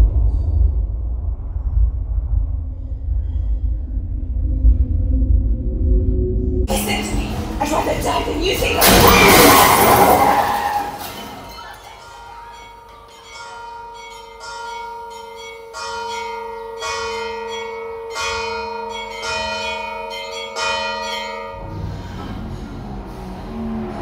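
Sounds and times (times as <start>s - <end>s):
church bells tolling: 6.7s - 22.6s.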